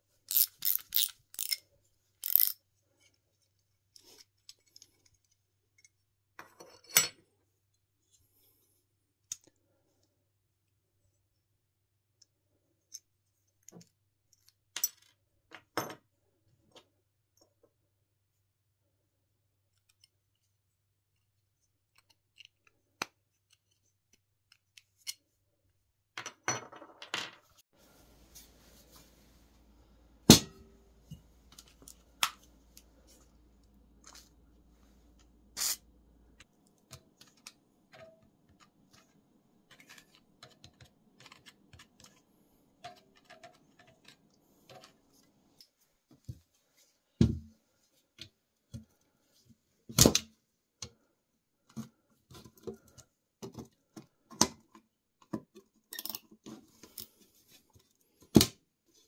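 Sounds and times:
socket ratchet clicking: 0.3 - 1.6, 2.2 - 2.6.

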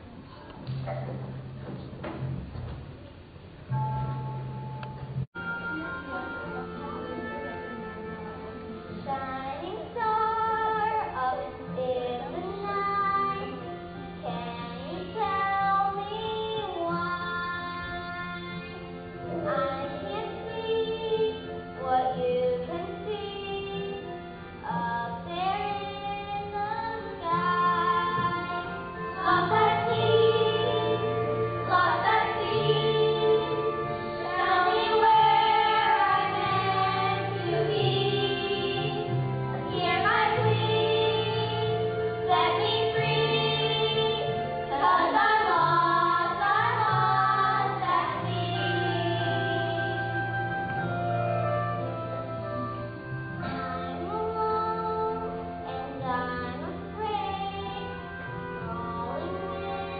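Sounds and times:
instrumental accompaniment: 0.0 - 59.9
children singing: 26.6 - 50.2.

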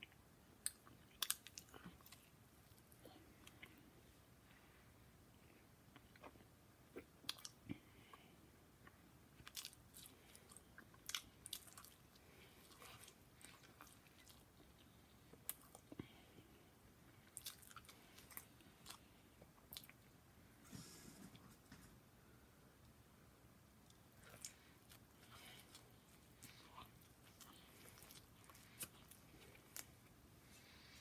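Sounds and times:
chewing and mouth clicks: 0.0 - 3.8, 5.9 - 8.2, 8.8 - 16.1, 17.2 - 20.1, 23.8 - 30.1.

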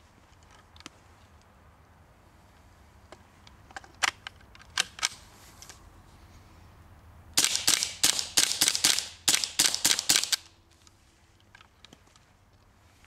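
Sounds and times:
rifle shots: 7.4 - 10.5.

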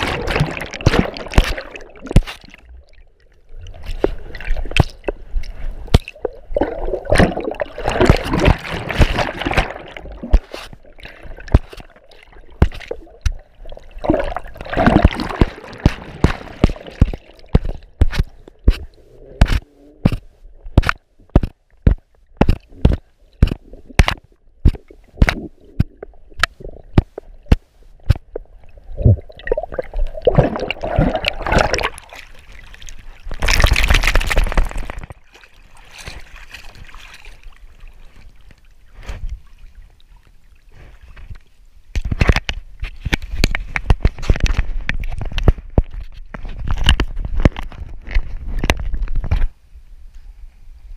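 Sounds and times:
splashing: 0.0 - 28.4, 29.0 - 38.2
water sloshing underwater: 0.0 - 50.3.

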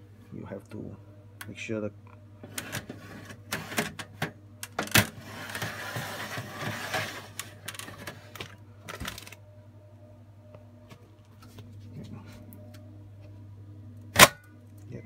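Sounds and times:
metal scraping slide: 2.4 - 4.0, 5.1 - 8.2.

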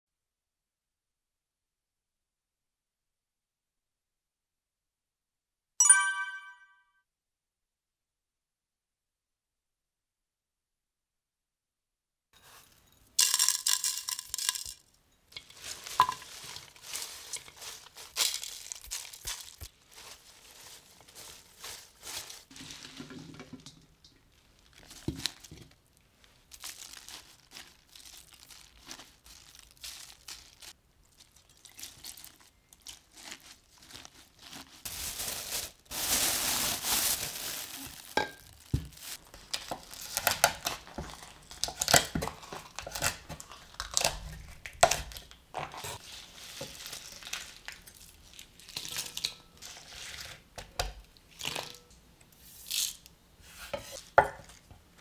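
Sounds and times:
hands rustling leaves in colander: 12.4 - 42.0, 45.8 - 50.4
plastic sheet crinkling: 13.2 - 50.4.

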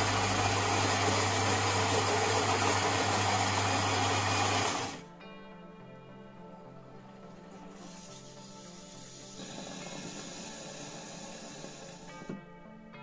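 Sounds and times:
coffee grinder whirring: 0.0 - 5.0
soft background music: 0.0 - 13.0.

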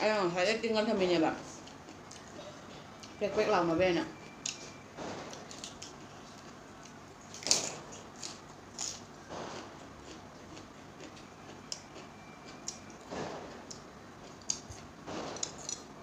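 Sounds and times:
wet chewing and smacking: 1.6 - 2.4, 5.3 - 15.8.

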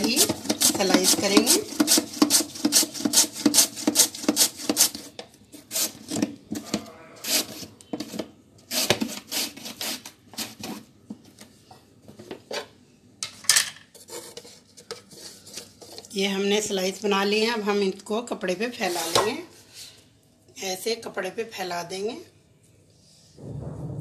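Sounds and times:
potato slicing on mandoline: 0.0 - 6.3, 8.7 - 10.5.

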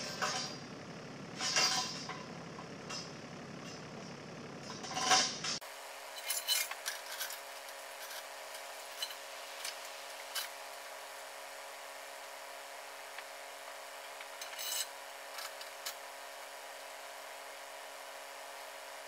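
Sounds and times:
metal clinks and clanks: 1.4 - 3.9, 4.6 - 10.6, 14.4 - 16.0.

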